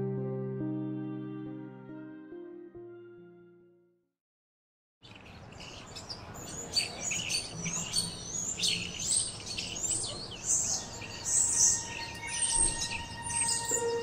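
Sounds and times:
small birds chirping and singing: 5.0s - 14.0s.

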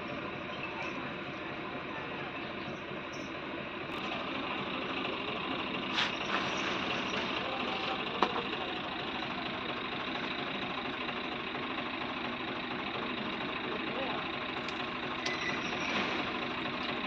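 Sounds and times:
machine running: 3.9s - 17.0s.

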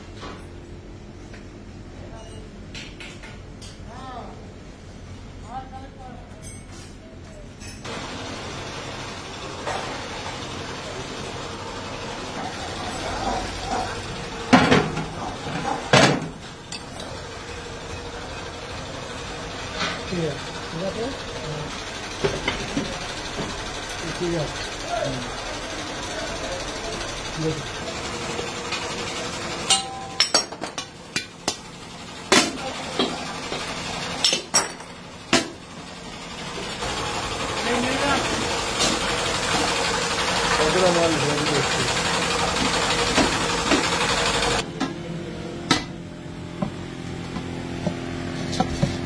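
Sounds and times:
metal clanks with ring: 2.1s - 2.5s, 6.4s - 7.0s, 29.7s - 30.5s.

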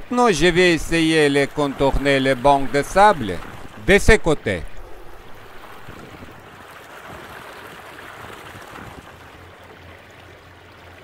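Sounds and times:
low hum: 0.0s - 7.3s
river water washing along hull: 0.0s - 11.0s.

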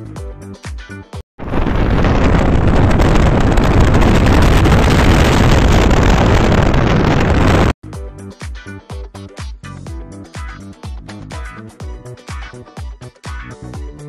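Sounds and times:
wind rushing over microphone: 1.4s - 7.8s.

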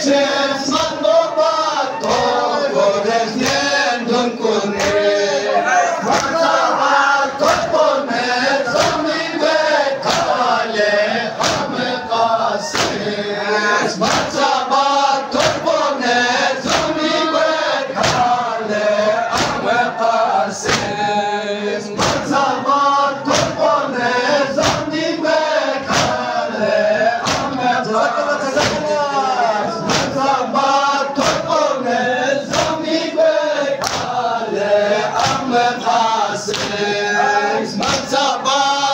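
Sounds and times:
men chanting in unison: 0.0s - 38.9s
chest slaps: 3.4s - 3.7s, 4.8s - 5.1s, 6.1s - 6.4s, 8.8s - 9.0s, 10.0s - 10.4s, 11.4s - 11.8s, 12.7s - 13.0s, 14.0s - 14.4s, 16.6s - 16.9s, 18.0s - 18.4s, 19.3s - 19.7s, 20.6s - 21.0s, 22.0s - 22.3s, 23.3s - 23.6s, 24.6s - 24.9s, 25.8s - 26.2s, 27.2s - 27.6s, 28.6s - 28.9s, 29.8s - 30.2s, 32.5s - 32.8s, 33.8s - 34.1s, 35.2s - 35.5s, 36.5s - 36.8s, 37.8s - 38.1s.

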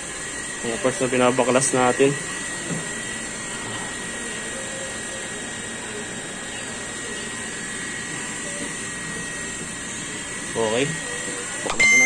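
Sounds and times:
high whine: 11.6s - 12.0s.

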